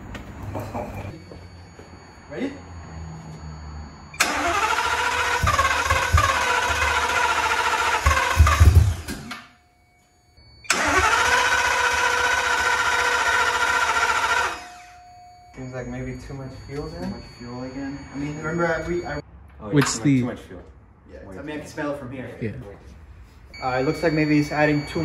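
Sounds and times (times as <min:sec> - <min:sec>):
starter whine: 0:02.8 - 0:09.6, 0:10.4 - 0:19.2
engine starter cranking: 0:04.2 - 0:09.5, 0:10.6 - 0:14.9.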